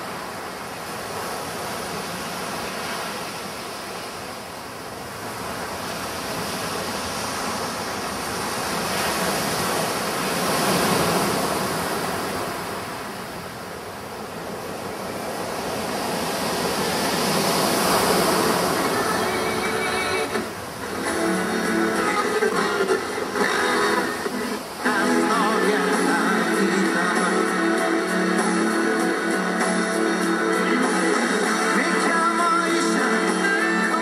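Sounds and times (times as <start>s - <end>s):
sea surf washing onto beach: 0.0s - 34.0s.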